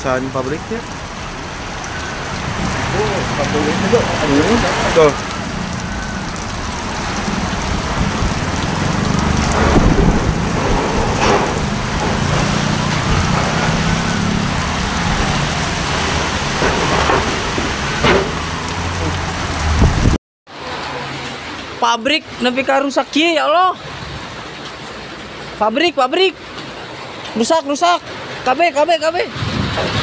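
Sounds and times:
heavy rain: 0:00.0 - 0:30.0
strong wind: 0:04.0 - 0:20.2, 0:29.2 - 0:30.0
loud low rumble: 0:07.1 - 0:20.2
sharp knocks: 0:09.1 - 0:14.5, 0:16.0 - 0:18.8.

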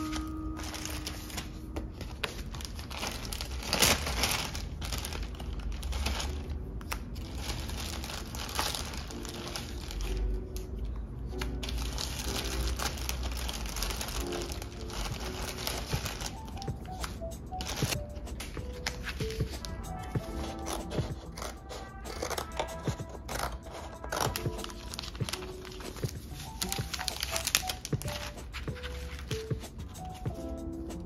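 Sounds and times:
plastic bags crinkling: 0:00.0 - 0:06.4, 0:07.2 - 0:10.3, 0:11.6 - 0:16.8, 0:17.6 - 0:18.0, 0:22.7 - 0:29.3.

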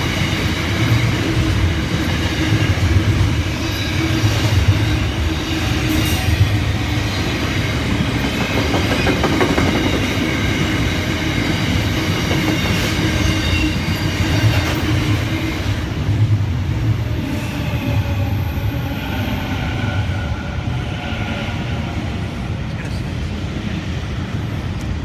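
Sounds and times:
electric train whine: 0:00.0 - 0:25.0
freight train wagons rumbling: 0:00.0 - 0:25.0.

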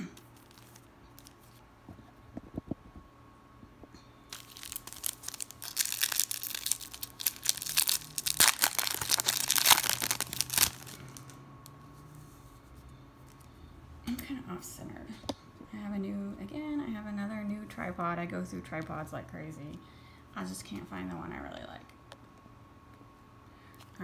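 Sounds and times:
foil wrapper crinkling and tearing: 0:00.3 - 0:01.6, 0:04.3 - 0:11.4.

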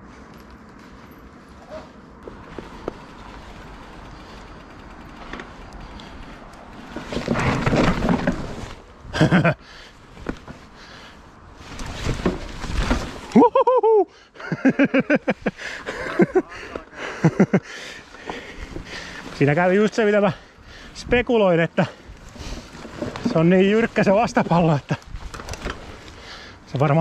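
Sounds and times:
mountain bike rolling on trail: 0:00.0 - 0:27.0
person laughing: 0:09.1 - 0:09.6, 0:13.3 - 0:17.8
person yelling: 0:13.4 - 0:14.1.

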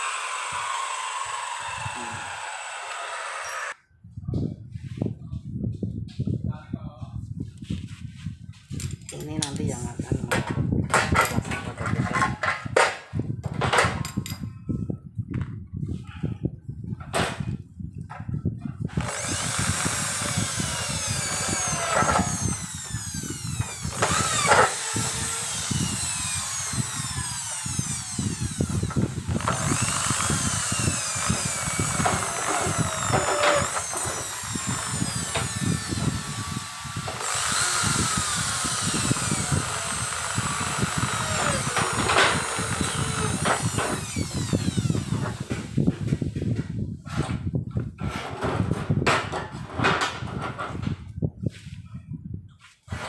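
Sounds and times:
electric drill boring into metal: 0:00.0 - 0:03.8, 0:18.9 - 0:45.8.

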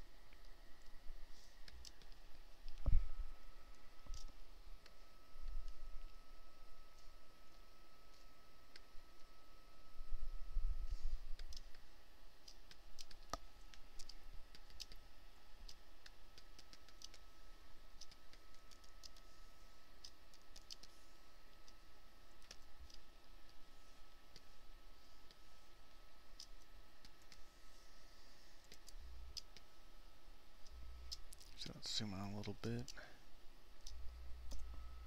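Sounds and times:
faint high whine: 0:00.0 - 0:35.0
computer mouse clicking: 0:01.6 - 0:02.9, 0:04.0 - 0:06.2, 0:11.4 - 0:11.8, 0:12.4 - 0:17.3, 0:18.0 - 0:19.3, 0:20.0 - 0:21.0, 0:21.6 - 0:23.6, 0:24.3 - 0:24.6, 0:26.3 - 0:27.5, 0:28.6 - 0:29.7, 0:33.8 - 0:34.8.

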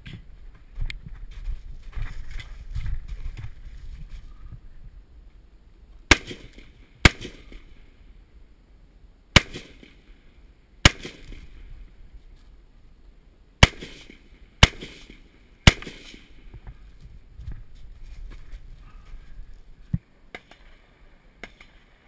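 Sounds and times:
rifle shots with echo: 0:06.1 - 0:07.8, 0:09.3 - 0:10.2, 0:10.8 - 0:11.6, 0:13.6 - 0:16.5.

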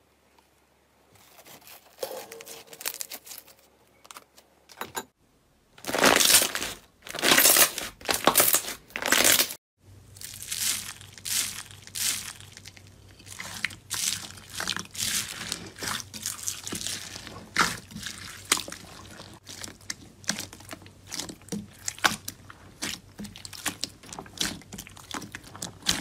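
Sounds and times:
crackly slime squishes: 0:05.8 - 0:26.0
crunching foam beads: 0:05.8 - 0:26.0
slime crackling through mesh: 0:10.2 - 0:26.0.

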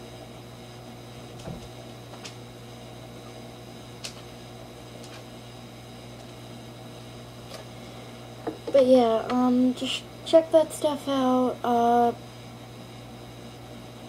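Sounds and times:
low electrical hum with hiss: 0:00.0 - 0:14.0.

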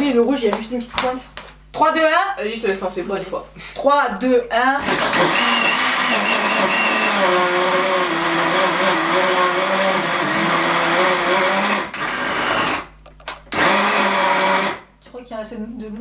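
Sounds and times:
blender motor churning: 0:04.8 - 0:12.9, 0:13.5 - 0:14.9.

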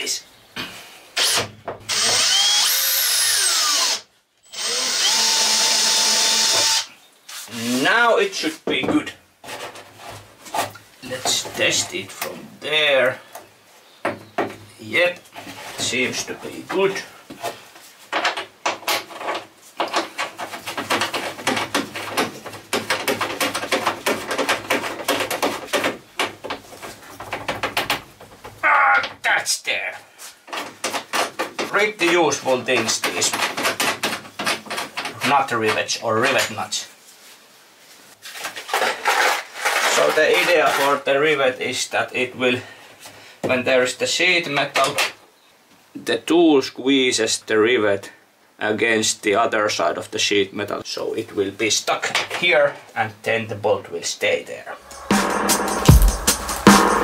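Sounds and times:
cordless drill whining: 0:01.2 - 0:06.9.

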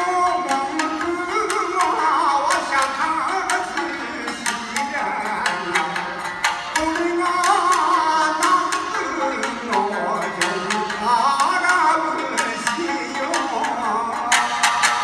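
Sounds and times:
drum: 0:00.0 - 0:15.0
man singing with vibrato: 0:00.0 - 0:15.0
plucked lute: 0:00.0 - 0:15.0.

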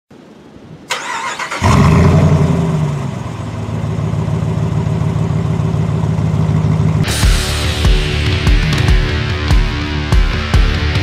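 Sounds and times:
engine cranking and starting: 0:00.9 - 0:02.5
engine idling: 0:01.0 - 0:10.1.

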